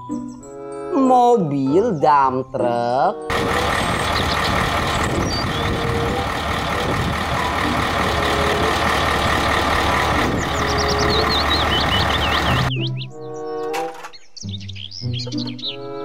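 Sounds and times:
truck engine running: 3.3s - 12.8s
birds chirping: 3.3s - 16.0s.

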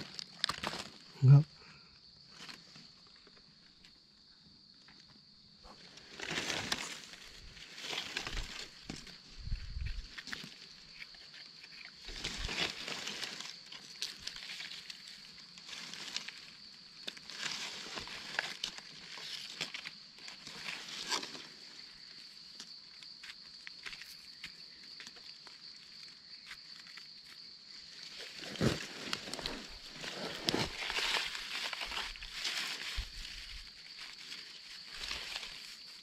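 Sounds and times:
insects droning: 0.0s - 36.0s
footsteps crunching dry leaves: 5.9s - 10.8s, 11.9s - 21.4s, 27.8s - 36.0s.

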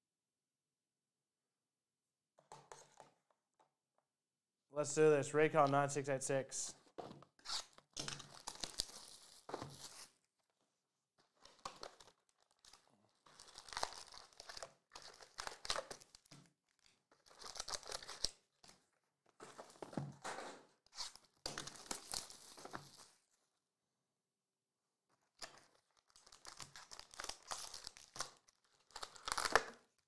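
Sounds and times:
plastic shrink wrap tearing: 26.0s - 30.0s.

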